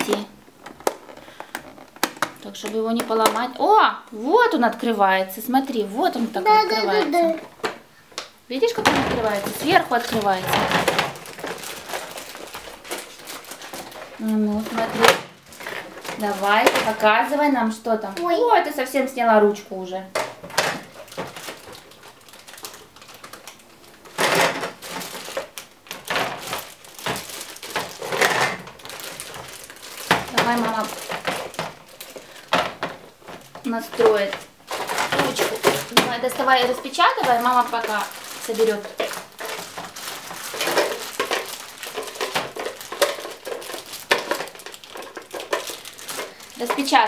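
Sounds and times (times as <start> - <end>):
plastic case clicks and clatter: 0.0 - 3.6, 7.0 - 17.0, 20.1 - 47.0
plastic bag crinkling: 0.0 - 7.8, 8.6 - 19.0, 20.1 - 47.0.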